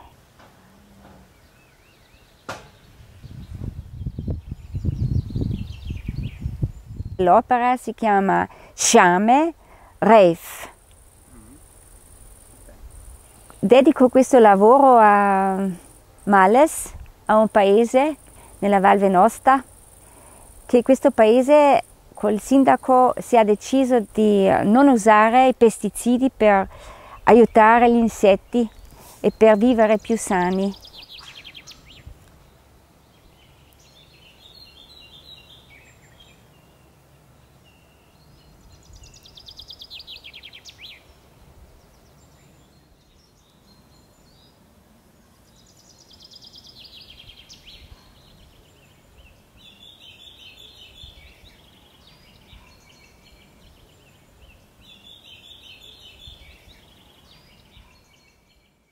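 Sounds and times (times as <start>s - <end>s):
faint outdoor hiss: 0.0s - 58.9s
songbirds singing trills: 0.0s - 58.9s.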